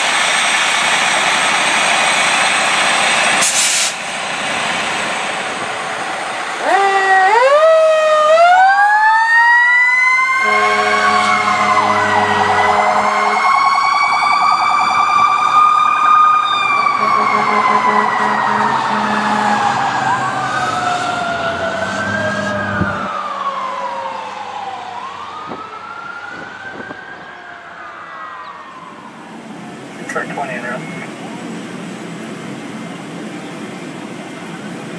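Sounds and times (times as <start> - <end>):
fire truck siren wailing: 0.0 - 33.4
horn blasts: 10.4 - 13.6, 16.9 - 19.6.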